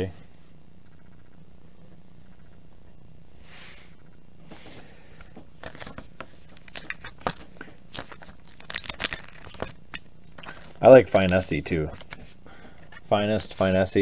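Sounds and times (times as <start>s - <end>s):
trading cards rustling: 4.5s - 14.0s
plastic card sleeve crinkling: 5.2s - 14.0s.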